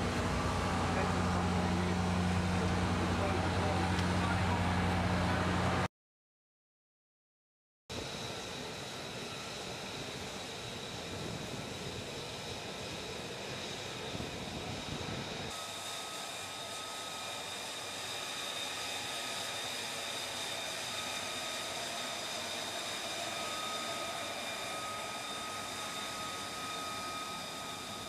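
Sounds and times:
deep engine rumble: 0.0 - 5.9
jet engine whine: 0.0 - 5.9, 7.9 - 28.0.

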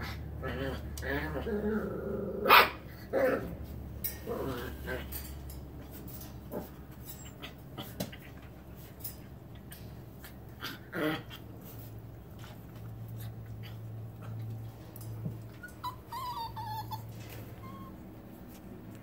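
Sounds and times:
puppies panting and snuffling: 3.6 - 19.0
puppy whimper: 15.5 - 18.6.

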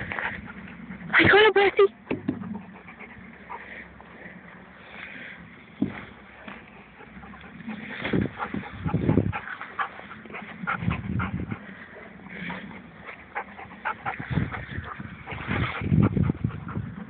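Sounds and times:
low thuds and rumbles: 8.0 - 9.5, 14.1 - 17.0.

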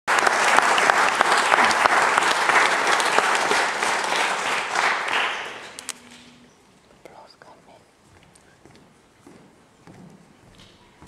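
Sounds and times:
audience applauding: 0.1 - 6.4.

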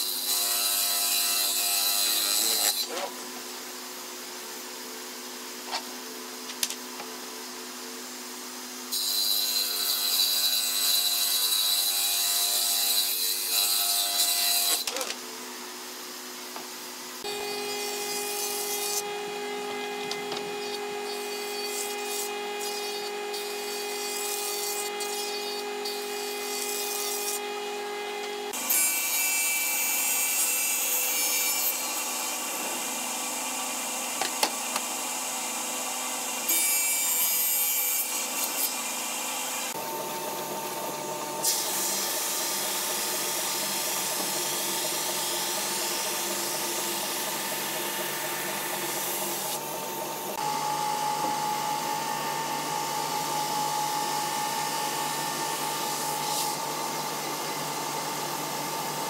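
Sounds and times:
jointer motor whine: 39.7 - 59.0.

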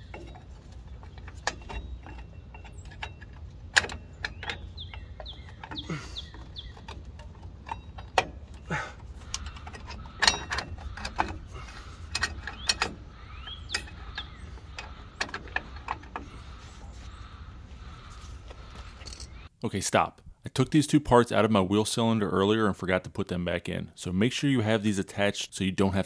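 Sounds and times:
metallic clicks and clinks: 0.0 - 16.5, 18.8 - 19.5.

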